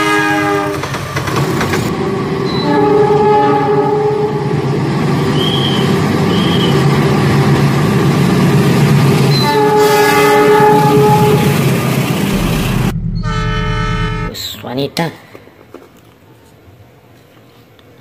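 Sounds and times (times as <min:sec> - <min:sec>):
multi-tone train horn: 0:00.0 - 0:00.9, 0:01.9 - 0:04.6, 0:09.3 - 0:11.7, 0:13.2 - 0:14.4
locomotive engine rumbling: 0:10.8 - 0:14.5.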